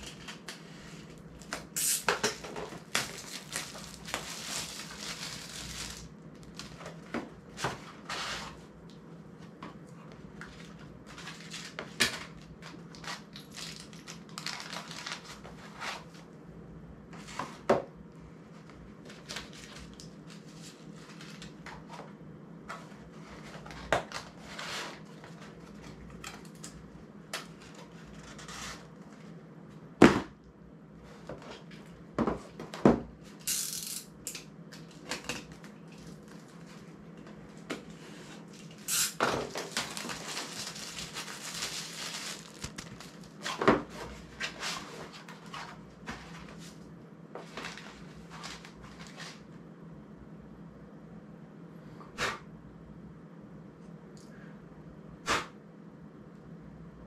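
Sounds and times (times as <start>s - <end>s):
cardboard boxes rustling: 37.6s - 46.8s.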